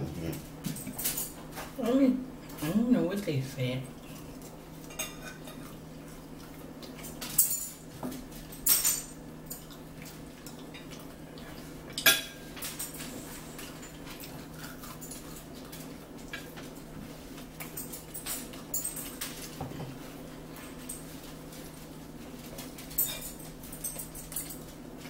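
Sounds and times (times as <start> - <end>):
steady low hum: 0.0 - 25.0
forks clinking on plates: 4.8 - 5.7, 7.0 - 9.8, 11.9 - 16.5, 17.6 - 19.8, 22.5 - 24.8.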